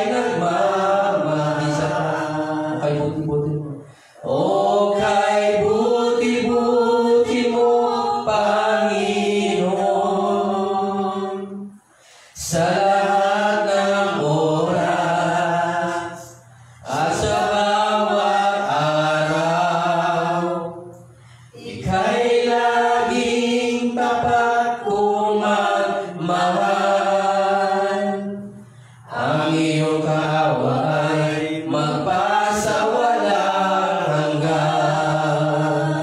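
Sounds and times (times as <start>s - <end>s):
man singing a cappella: 0.0s - 11.6s, 12.4s - 21.0s, 21.8s - 36.0s.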